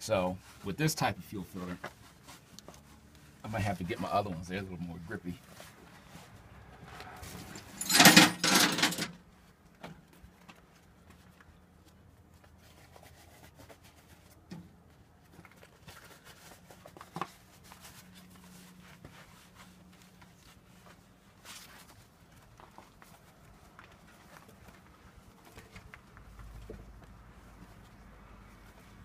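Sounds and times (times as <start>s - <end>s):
clothing rustling on microphone: 0.3s - 7.8s.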